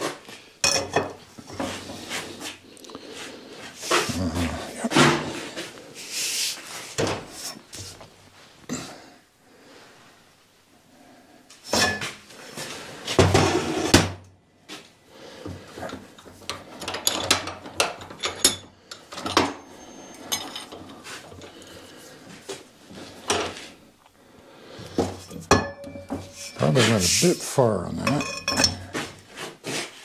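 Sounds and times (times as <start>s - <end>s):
metal scraping and clanking: 25.0s - 27.4s
metal bar clinking in vise: 25.3s - 26.6s, 28.1s - 28.8s.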